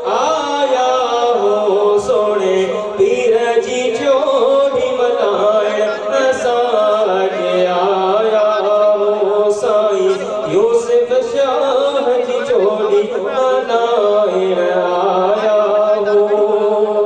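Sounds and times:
man singing into a microphone: 0.0 - 17.0.

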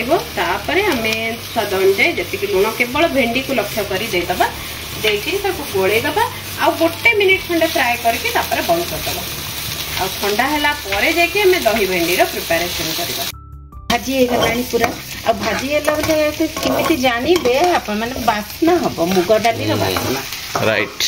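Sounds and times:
vegetables sizzling in frying pan: 0.0 - 13.3, 13.9 - 21.0
wooden spatula scraping pan: 14.2 - 20.6.

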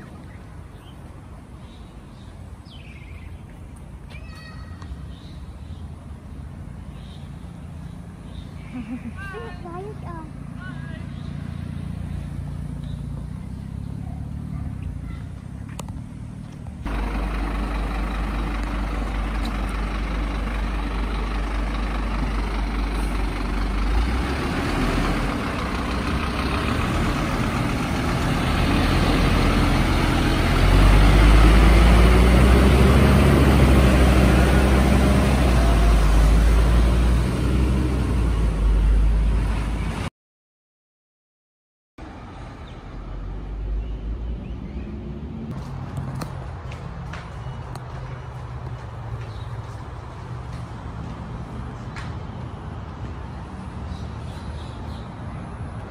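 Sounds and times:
fire engine diesel engine: 5.8 - 40.1.

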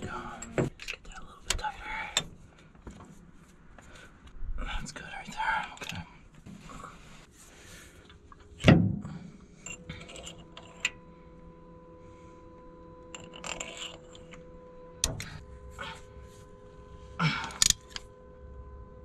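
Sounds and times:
faint steady hum: 0.0 - 19.0
metal tools clinking: 9.6 - 11.0, 13.1 - 14.4.

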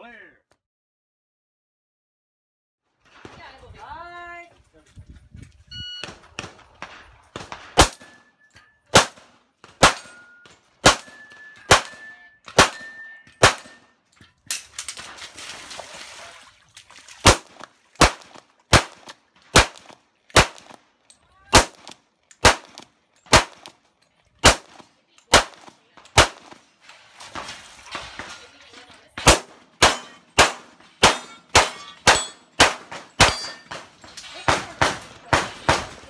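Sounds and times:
pistol shots: 6.0 - 8.3, 8.9 - 13.9, 17.2 - 20.8, 21.5 - 23.8, 24.4 - 26.6, 29.2 - 36.0
metallic ring of steel targets: 7.7 - 9.0, 9.8 - 15.0, 29.8 - 35.1.

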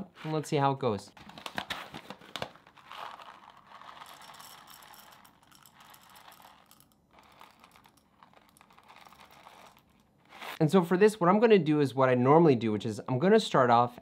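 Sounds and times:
paper bag crinkling: 1.2 - 4.1.

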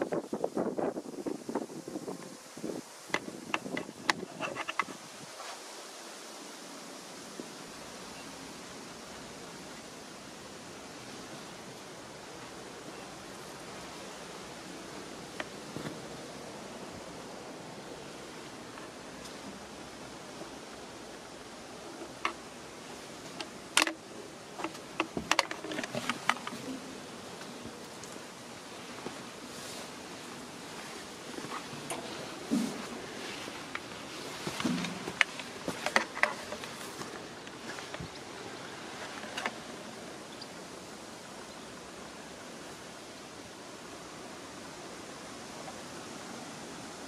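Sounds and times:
steady rustling hiss: 0.0 - 47.0.

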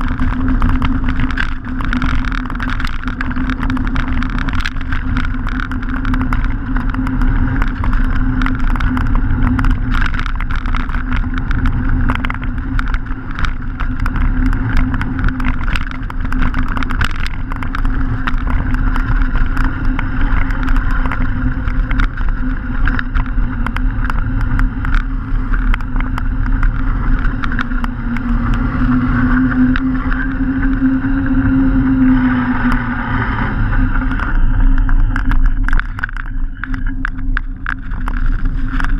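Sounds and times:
bike clicks and rattles: 0.0 - 38.9
bike tyre rumble: 0.0 - 38.9.

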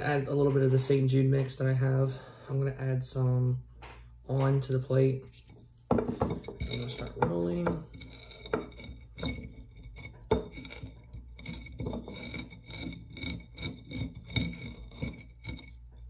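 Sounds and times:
candle scraping on ceramic plate: 4.9 - 16.0.

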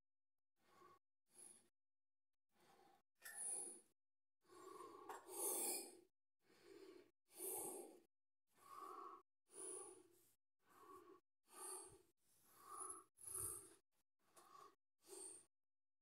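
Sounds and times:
person breathing quickly: 6.4 - 15.5.

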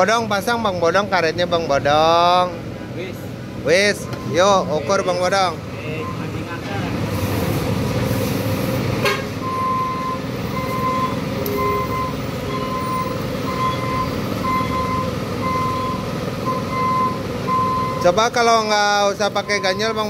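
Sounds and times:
vehicle traffic rumble: 0.0 - 20.0
short electronic beep: 9.5 - 18.0.

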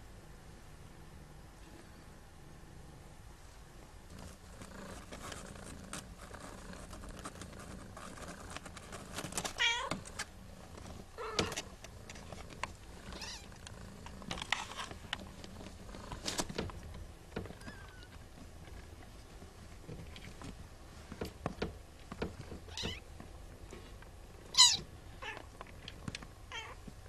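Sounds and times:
kitten meowing: 24.5 - 25.4.

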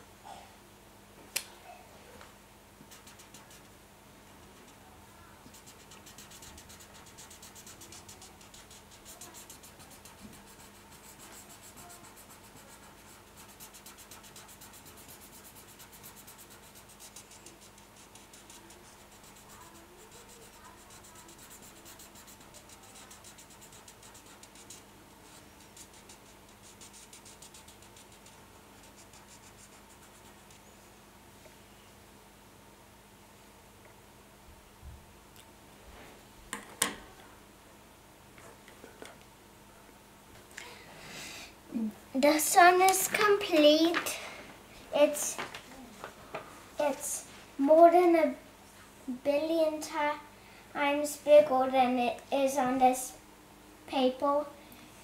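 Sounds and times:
marker scratching on paper: 2.9 - 3.7, 5.5 - 30.7.

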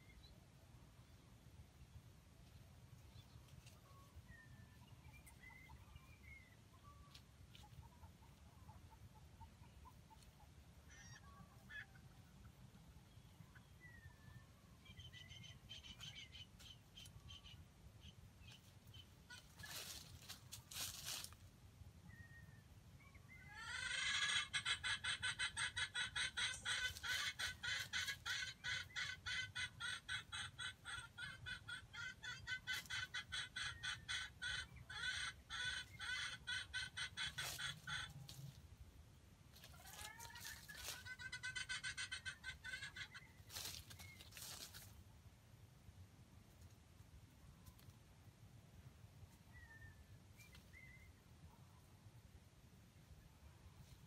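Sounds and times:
chicken clucking: 2.4 - 14.2, 23.2 - 38.6, 39.5 - 45.0
faint bird chirps: 2.9 - 20.4, 22.0 - 23.8, 49.3 - 51.9.

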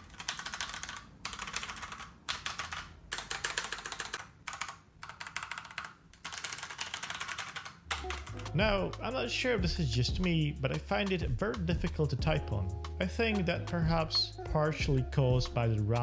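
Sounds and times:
fast typing on mechanical keyboard: 0.0 - 8.5.

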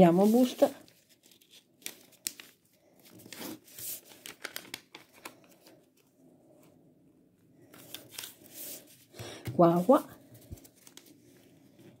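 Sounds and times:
paper crinkling as folded: 0.0 - 6.1, 7.7 - 9.0, 10.2 - 12.0.

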